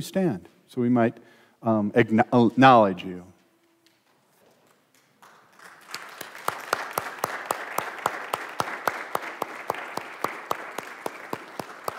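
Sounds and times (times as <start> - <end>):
congregation applauding: 4.9 - 11.9
sharp even hand claps: 5.0 - 11.9.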